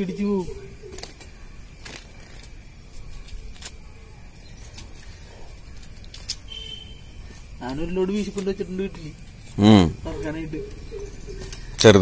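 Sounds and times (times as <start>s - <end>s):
high-pitched whine: 6.5s - 12.0s.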